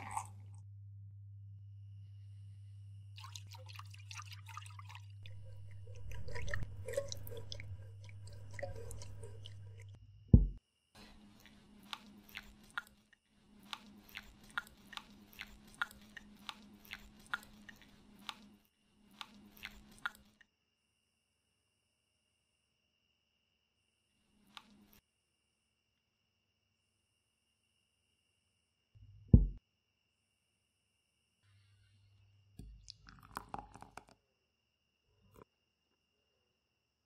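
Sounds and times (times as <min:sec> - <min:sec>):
spoon stirring frothy milk in glass: 0:03.2 - 0:10.0
loud thump: 0:29.4 - 0:29.6.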